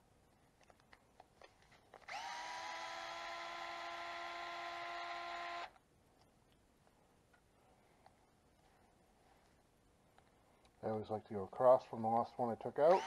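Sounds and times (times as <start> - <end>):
electric screwdriver motor whine: 2.0 - 5.8.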